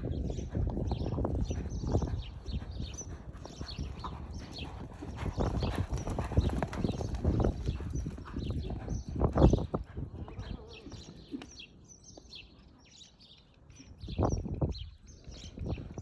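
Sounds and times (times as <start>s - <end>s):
horse hooves on sand: 0.0s - 16.0s
small birds chirping: 0.0s - 16.0s.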